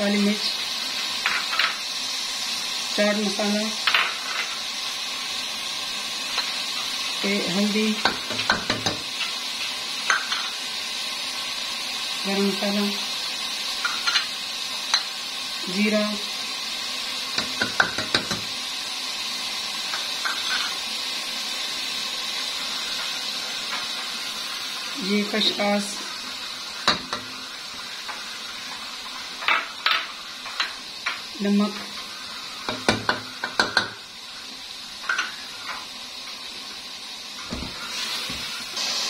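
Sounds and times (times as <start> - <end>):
chicken frying in oil: 0.0 - 39.0
faint steady hiss: 0.0 - 39.0
utensils knocking on metal pot: 8.0 - 9.3, 17.4 - 18.5, 32.7 - 34.0.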